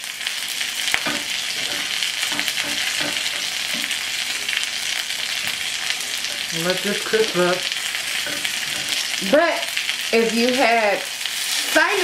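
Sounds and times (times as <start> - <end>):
chicken sizzling in oil: 0.0 - 12.0.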